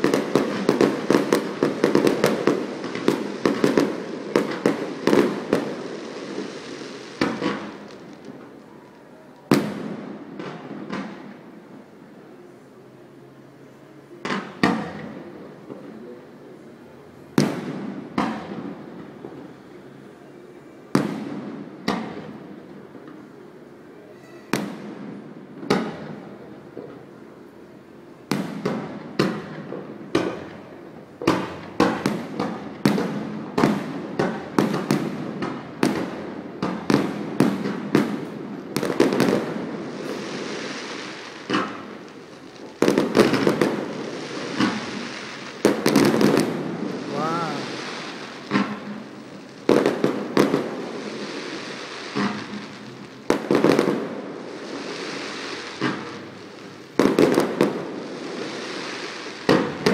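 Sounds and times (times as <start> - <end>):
firework crackling hiss: 0.0 - 11.8, 20.9 - 59.9
firework shells bursting: 31.2 - 54.2.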